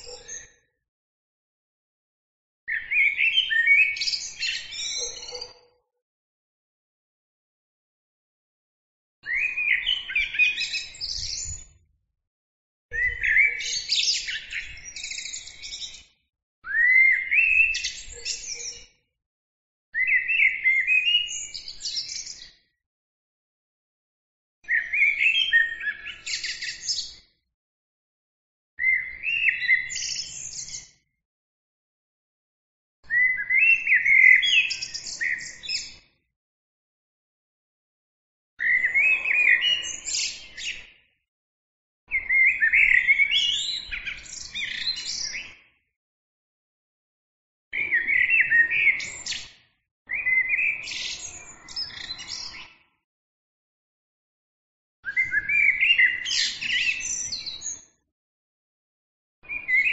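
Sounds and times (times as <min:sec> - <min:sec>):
blackbird singing: 0:00.0 - 0:00.6, 0:02.7 - 0:05.6, 0:09.2 - 0:11.8, 0:13.0 - 0:16.1, 0:16.7 - 0:18.9, 0:20.0 - 0:22.6, 0:24.7 - 0:27.2, 0:28.8 - 0:30.9, 0:33.1 - 0:36.0, 0:38.6 - 0:40.8, 0:42.1 - 0:45.6, 0:47.8 - 0:49.5, 0:50.1 - 0:52.8, 0:55.1 - 0:57.9, 0:59.4 - 0:59.9.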